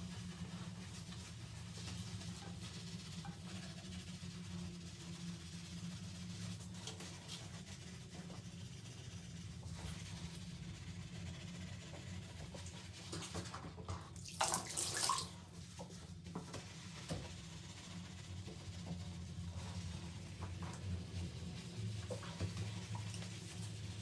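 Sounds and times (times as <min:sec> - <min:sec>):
wet scrubbing and wiping: 0:00.0 - 0:24.0
water splashing: 0:14.2 - 0:15.4.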